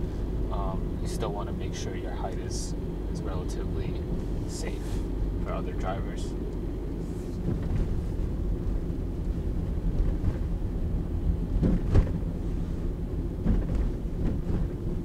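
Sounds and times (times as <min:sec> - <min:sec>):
car road rumble: 0:00.0 - 0:15.0
thumps from bumps: 0:11.6 - 0:12.3, 0:13.4 - 0:14.8.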